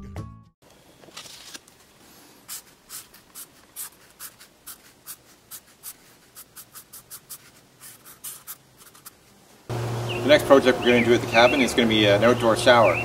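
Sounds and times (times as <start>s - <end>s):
marker scratching on paper: 2.5s - 9.2s.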